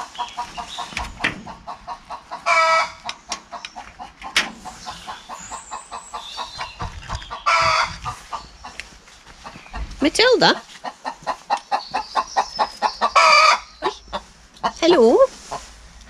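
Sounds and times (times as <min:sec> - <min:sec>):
hens clucking: 0:00.0 - 0:16.0
hen drawn-out calls: 0:00.4 - 0:03.6, 0:04.6 - 0:08.4, 0:10.5 - 0:15.7.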